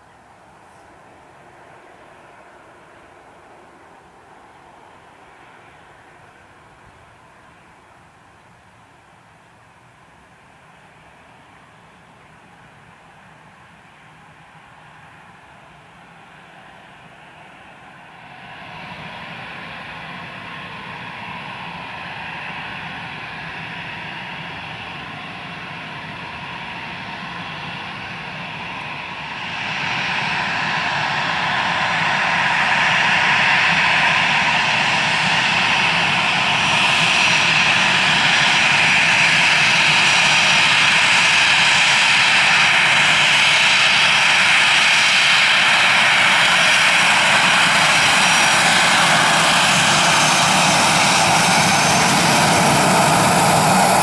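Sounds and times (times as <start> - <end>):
jet engines whining: 14.6 - 54.0.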